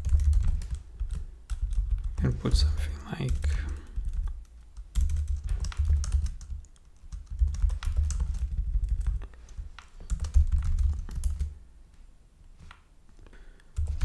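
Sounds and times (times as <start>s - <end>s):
typing on keyboard: 0.0s - 11.5s, 13.8s - 14.0s.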